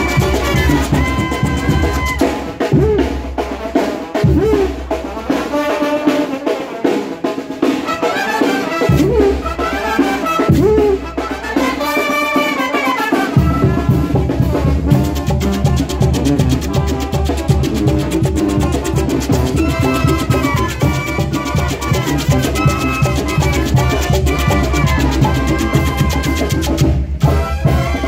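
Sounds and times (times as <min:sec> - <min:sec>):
sousaphone bass line: 0:00.0 - 0:03.1, 0:14.9 - 0:26.9
brass band marching: 0:00.0 - 0:28.0
drums: 0:00.0 - 0:28.0
trumpets and trombones: 0:00.0 - 0:28.0.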